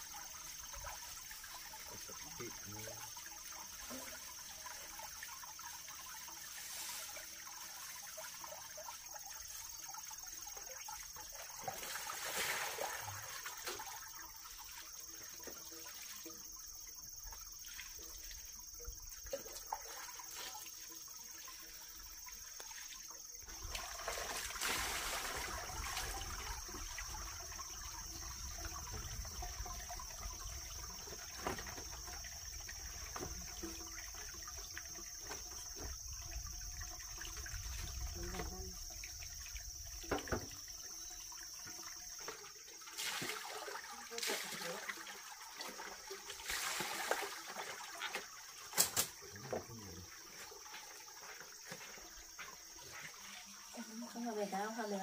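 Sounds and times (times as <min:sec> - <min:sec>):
water trickling: 0:00.0 - 0:55.0
water splashing: 0:10.4 - 0:16.5, 0:17.2 - 0:54.9.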